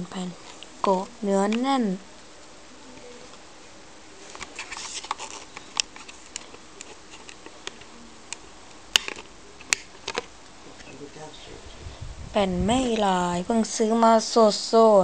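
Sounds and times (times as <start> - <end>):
sharp plastic click: 5.8 - 10.3
plastic case clicks and rustles: 9.0 - 10.3.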